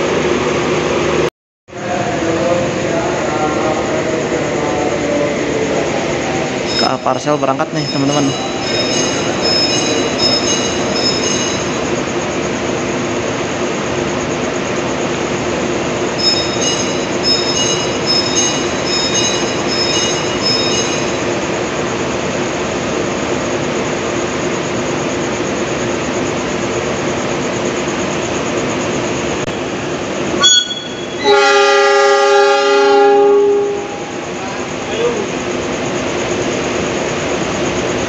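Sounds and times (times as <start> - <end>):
train cars rumbling: 1.8 - 13.9, 14.6 - 22.9, 29.6 - 38.0
high-pitched squeals: 6.5 - 12.1, 16.2 - 21.6, 30.4 - 32.0.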